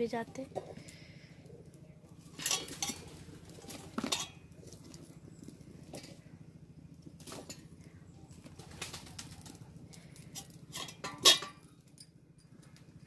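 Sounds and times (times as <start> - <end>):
steady low hum: 0.0 - 13.0
loud utensil clatter: 2.3 - 4.4, 10.3 - 11.8.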